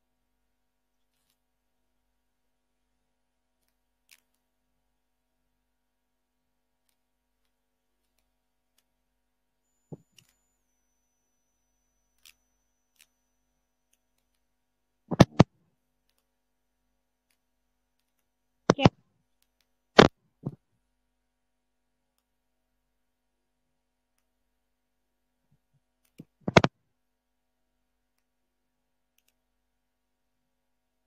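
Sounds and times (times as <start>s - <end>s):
computer mouse clicking: 26.0s - 26.7s.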